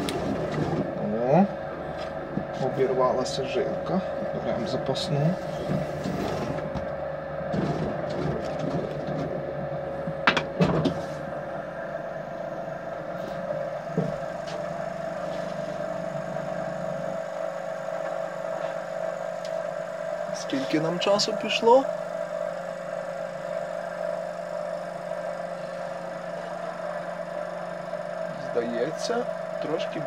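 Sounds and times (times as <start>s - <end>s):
potter's wheel humming: 0.0s - 30.0s.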